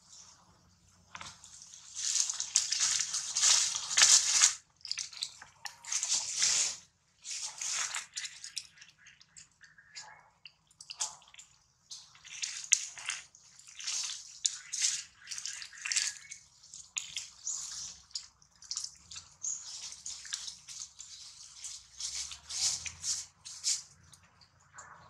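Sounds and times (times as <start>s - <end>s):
dry leaves rustling: 1.2s - 4.6s, 5.9s - 8.1s, 19.3s - 24.0s.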